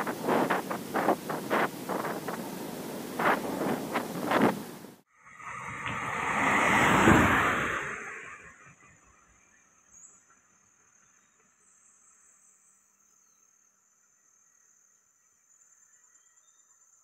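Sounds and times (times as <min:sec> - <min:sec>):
insect chirring: 0:00.0 - 0:04.5, 0:09.1 - 0:17.0
car passing: 0:00.0 - 0:09.1.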